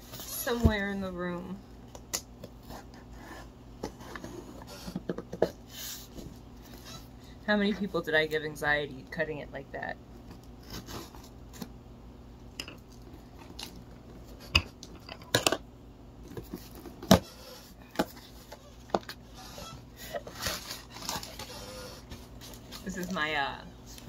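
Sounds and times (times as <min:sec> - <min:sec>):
packing tape tearing: 0:20.2 - 0:22.9.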